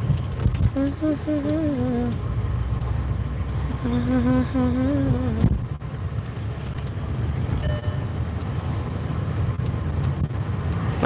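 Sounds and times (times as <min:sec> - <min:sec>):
car engine rumble: 0:00.0 - 0:11.0
road noise inside car: 0:00.0 - 0:11.0
brief high tone: 0:07.6 - 0:08.1.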